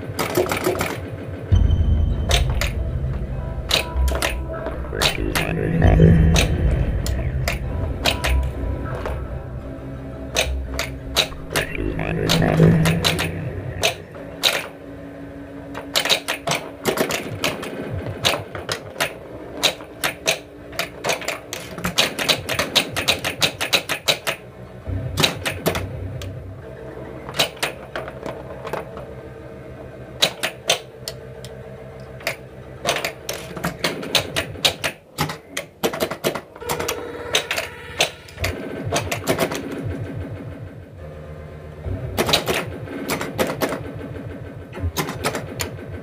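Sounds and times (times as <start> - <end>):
pinball mechanical clacking: 0.0 - 1.6, 2.2 - 9.2, 10.2 - 14.8, 15.7 - 24.5, 25.1 - 26.4, 27.2 - 29.1, 30.2 - 41.1, 41.7 - 46.0
electronic game tones: 1.5 - 14.2.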